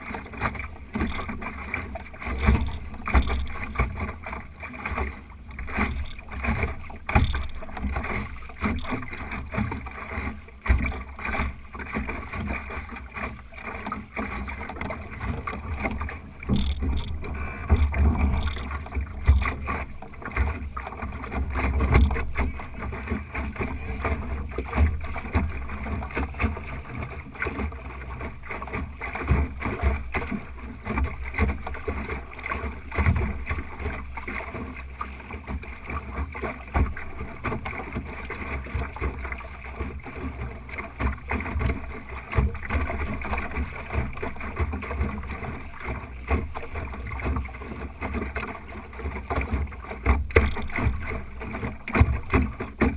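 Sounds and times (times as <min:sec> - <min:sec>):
water splashing against hull: 0:00.0 - 0:52.9
irregular knocks: 0:07.0 - 0:07.9, 0:16.5 - 0:17.2.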